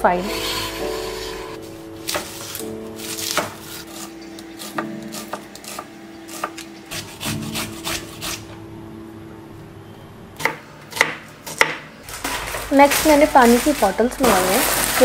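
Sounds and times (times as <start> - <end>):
knife slicing onion on board: 2.1 - 8.5.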